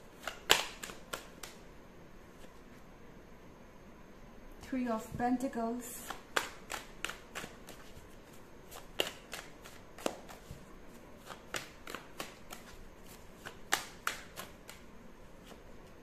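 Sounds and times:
cards being shuffled: 0:00.0 - 0:01.6, 0:06.0 - 0:16.0.

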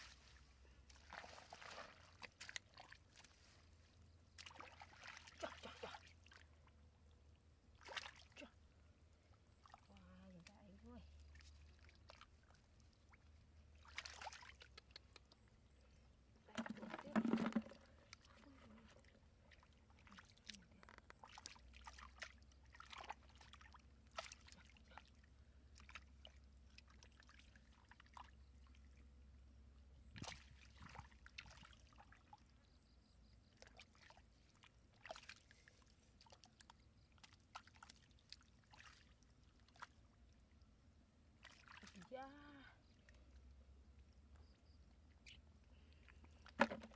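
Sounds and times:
hands sloshing through muddy water: 0:00.0 - 0:29.1, 0:30.0 - 0:46.9.

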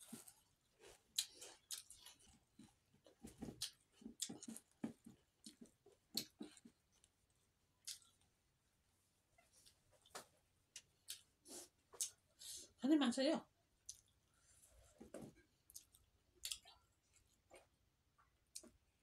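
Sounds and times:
chewing and lip smacks: 0:01.0 - 0:02.7, 0:05.4 - 0:07.1, 0:07.8 - 0:08.2, 0:13.8 - 0:14.2, 0:15.6 - 0:18.8.

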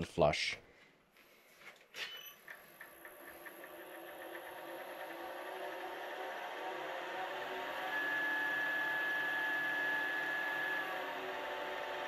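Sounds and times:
wood lathe running: 0:02.6 - 0:12.0.

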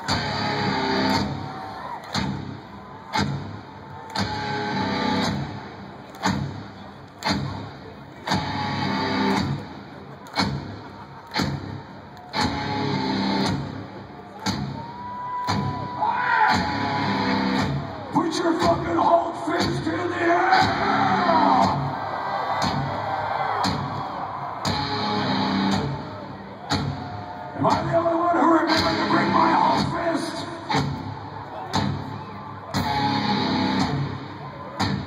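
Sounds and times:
guitar chords: 0:00.0 - 0:01.4, 0:04.2 - 0:05.8, 0:08.3 - 0:09.7, 0:12.4 - 0:13.9, 0:24.7 - 0:26.1, 0:32.8 - 0:35.0
live rock band: 0:07.2 - 0:18.9, 0:24.7 - 0:31.1, 0:31.7 - 0:35.0.

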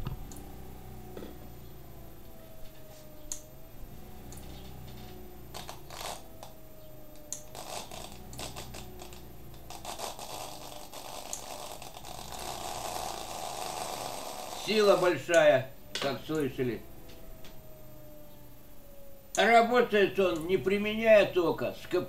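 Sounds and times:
electric motor humming: 0:00.0 - 0:21.3
rod scraping spinning tyre: 0:07.5 - 0:15.2.

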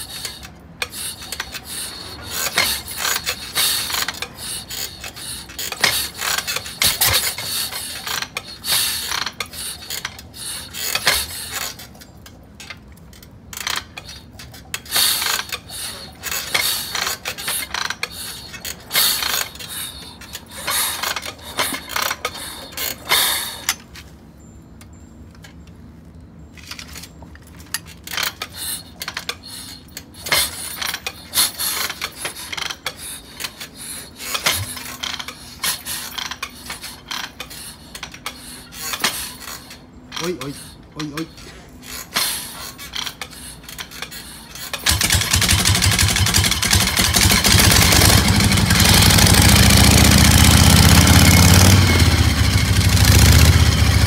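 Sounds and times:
motorcycle kick-start clanking: 0:00.1 - 0:23.9, 0:41.9 - 0:54.0.

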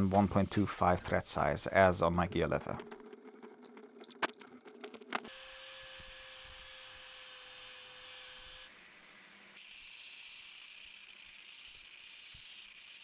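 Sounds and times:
metal squeaks of tapping: 0:03.6 - 0:05.0.

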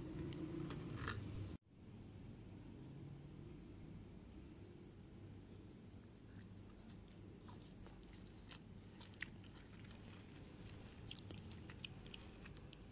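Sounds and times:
chewing biscuit crunches: 0:06.0 - 0:12.9.

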